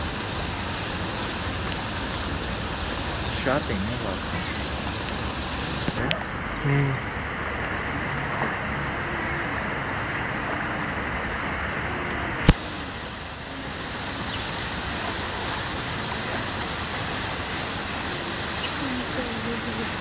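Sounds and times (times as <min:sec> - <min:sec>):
steady rushing noise: 0:00.0 - 0:20.0
faint distant voices: 0:01.8 - 0:07.2, 0:11.8 - 0:20.0.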